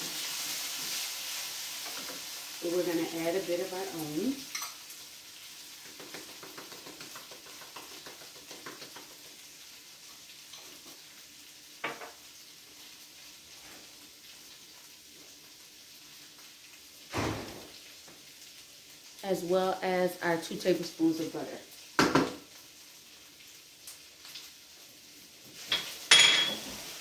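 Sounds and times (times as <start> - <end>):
potatoes sizzling in a skillet: 0.0 - 27.0
light stirring ticks: 5.8 - 9.4
knock: 22.0 - 22.4.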